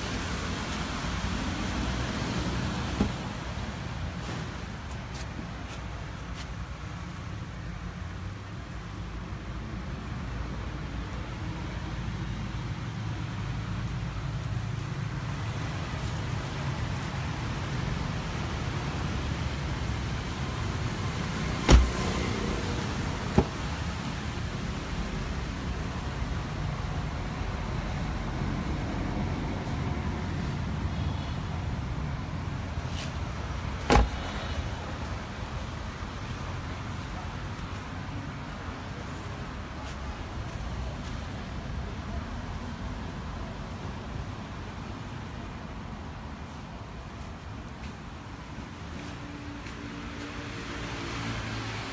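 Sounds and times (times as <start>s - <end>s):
car door shutting: 2.9s - 3.3s, 21.6s - 22.2s, 23.3s - 23.6s, 33.8s - 34.4s.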